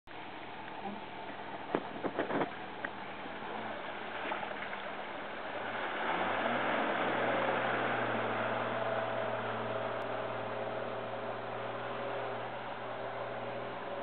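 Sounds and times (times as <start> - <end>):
water splashing around wheels: 0.1 - 14.0
car engine revving: 5.5 - 14.0.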